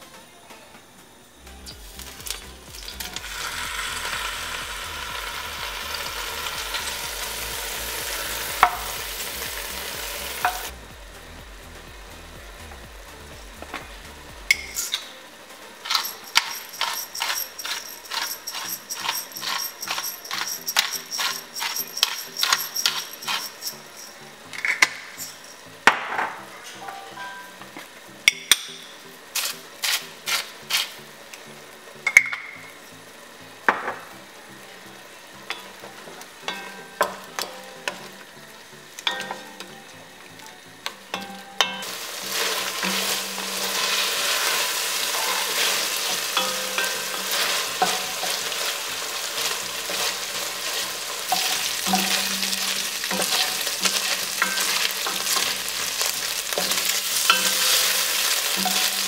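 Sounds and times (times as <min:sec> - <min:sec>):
chicken frying in oil: 0:01.8 - 0:10.8, 0:41.8 - 0:59.0
wooden spoon scraping a pot: 0:16.0 - 0:24.0.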